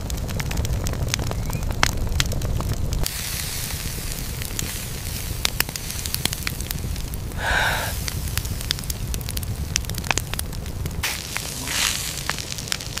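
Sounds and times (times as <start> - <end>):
wood fire crackling: 0.0 - 13.0
fire hiss: 2.9 - 13.0.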